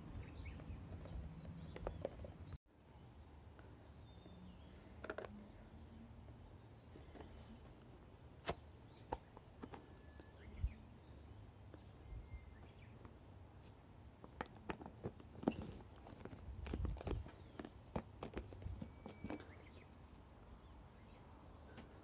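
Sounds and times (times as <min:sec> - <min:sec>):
faint bird chirps: 0:08.5 - 0:13.1, 0:18.6 - 0:22.0.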